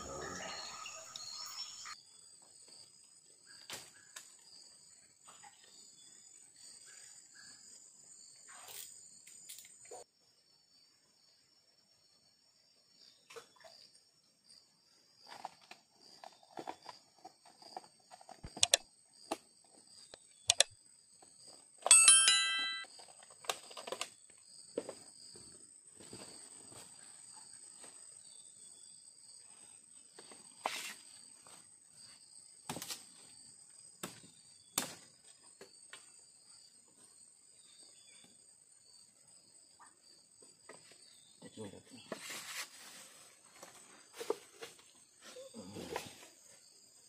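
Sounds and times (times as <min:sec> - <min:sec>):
bell-like ringing: 0:21.9 - 0:22.9.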